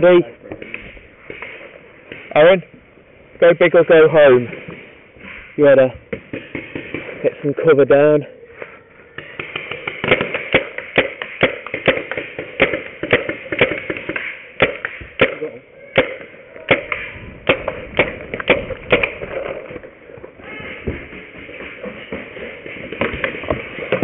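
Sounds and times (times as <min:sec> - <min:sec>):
paintball marker firing shots: 0:06.1 - 0:07.3, 0:09.2 - 0:19.9, 0:20.5 - 0:24.0.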